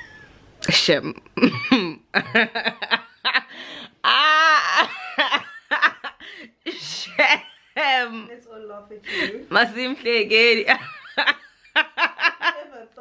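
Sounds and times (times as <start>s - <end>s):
young woman laughing: 1.4s - 7.8s, 10.7s - 12.8s.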